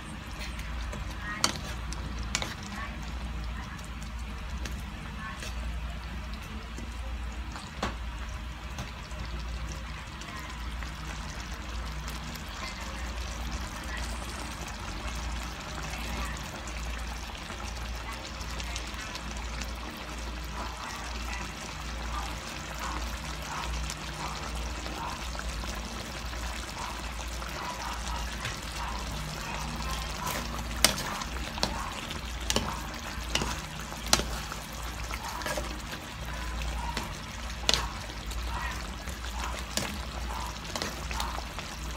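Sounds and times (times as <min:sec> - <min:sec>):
stew bubbling in a pan: 0:00.0 - 0:41.9.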